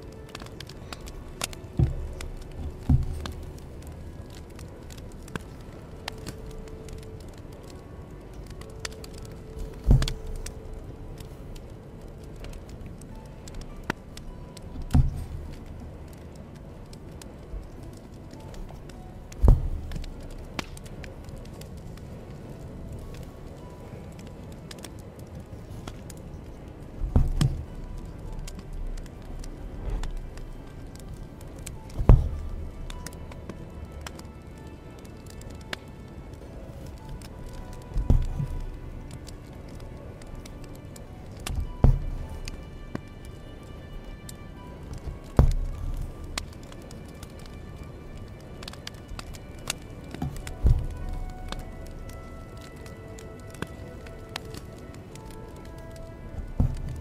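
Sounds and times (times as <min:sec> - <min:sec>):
dull thumps: 0:09.6 - 0:10.4, 0:14.8 - 0:15.4, 0:19.3 - 0:20.1, 0:27.0 - 0:27.8, 0:31.8 - 0:32.6, 0:45.3 - 0:45.8.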